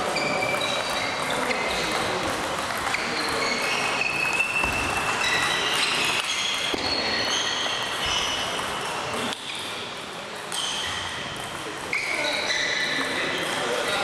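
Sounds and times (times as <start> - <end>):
ping pong ball clicking: 0.6 - 6.4
high ringing pings and squeaks: 3.0 - 8.6.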